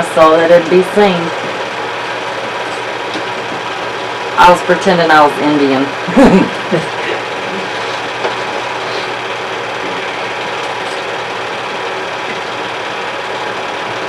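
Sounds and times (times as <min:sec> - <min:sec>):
film projector whirring and clattering: 0:00.0 - 0:14.0.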